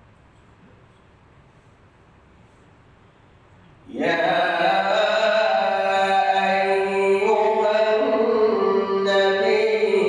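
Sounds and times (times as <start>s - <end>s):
man chanting: 3.9s - 10.0s.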